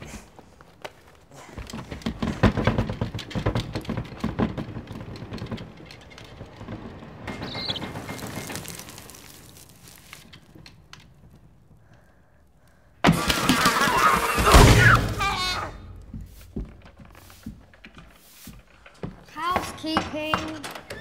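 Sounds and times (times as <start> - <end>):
flapping rustling paper and thrashing: 0.0 - 11.3, 13.0 - 18.9.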